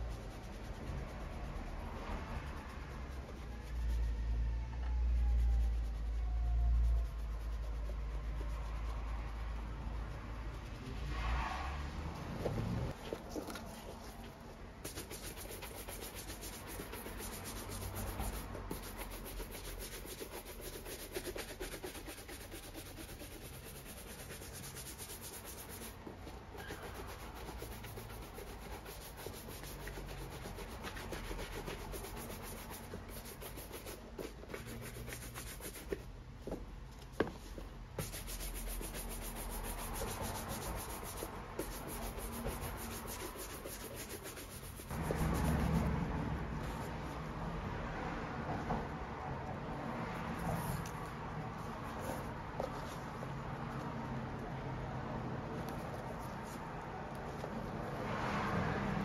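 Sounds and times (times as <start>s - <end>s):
brush scrubbing leather boot: 14.8s - 36.0s, 38.0s - 45.6s.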